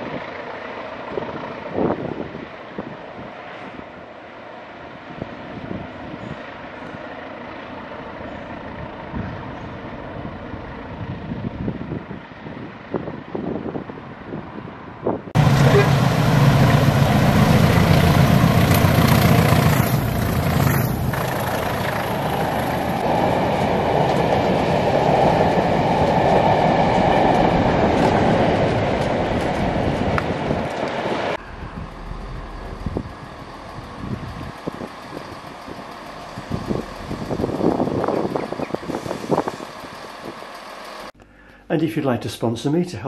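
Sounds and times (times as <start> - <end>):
diesel locomotive engines: 0.0 - 41.7
train wheels rumbling on rails: 15.4 - 41.2.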